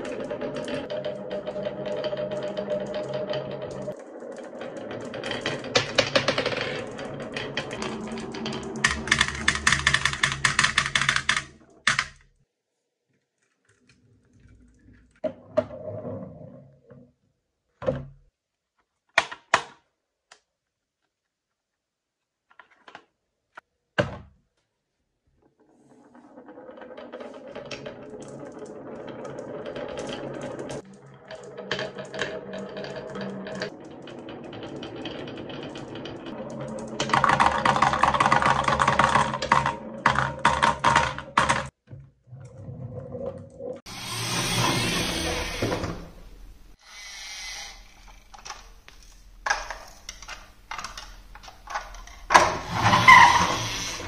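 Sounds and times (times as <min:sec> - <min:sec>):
marbles clattering into metal flatbed: 0:00.0 - 0:11.4, 0:26.0 - 0:41.7, 0:48.0 - 0:54.0
marbles rolling on wooden track: 0:00.0 - 0:12.2, 0:25.4 - 0:41.8, 0:42.7 - 0:46.8, 0:47.6 - 0:54.0.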